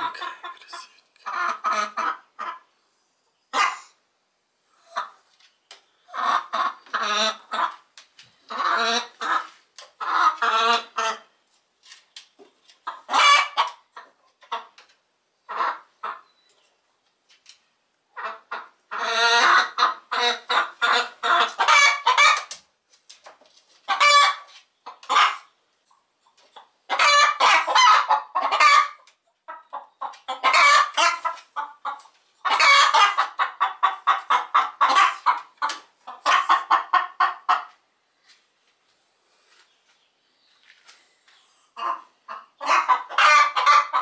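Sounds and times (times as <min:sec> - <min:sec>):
hens cackling: 0:00.0 - 0:02.7, 0:03.5 - 0:04.0, 0:06.1 - 0:11.3, 0:12.8 - 0:14.8, 0:15.4 - 0:16.2, 0:18.1 - 0:22.6, 0:23.8 - 0:25.6, 0:26.3 - 0:37.8, 0:41.8 - 0:44.0.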